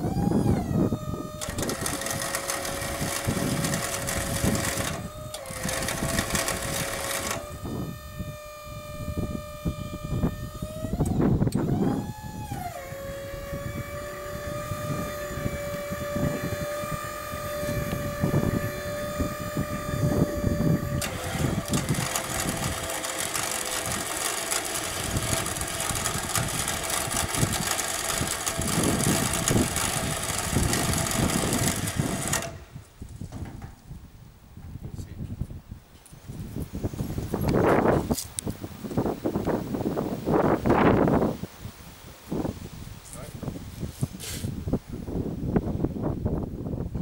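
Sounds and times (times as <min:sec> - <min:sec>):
hydraulic crane whine: 0:00.0 - 0:33.8
truck engine running: 0:00.9 - 0:10.6, 0:13.1 - 0:32.7
hydraulic hiss: 0:44.0 - 0:44.6.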